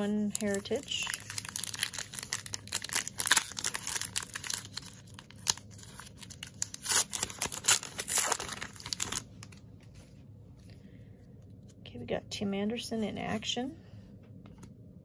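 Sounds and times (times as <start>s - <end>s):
card pack wrapper tearing: 0.2s - 9.6s.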